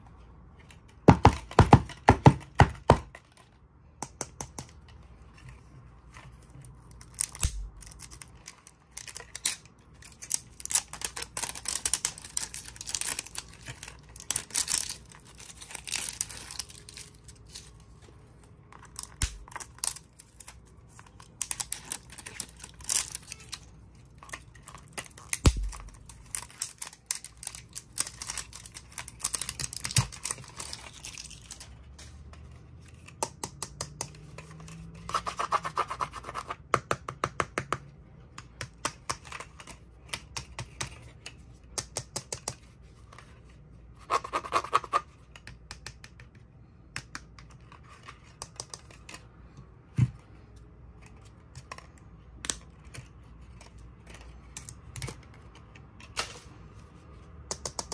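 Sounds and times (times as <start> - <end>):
card tag rustling and crinkling: 5.0 - 33.1
plastic toy car clicks and taps: 33.2 - 34.3, 41.7 - 42.6, 44.8 - 47.6, 57.5 - 57.9.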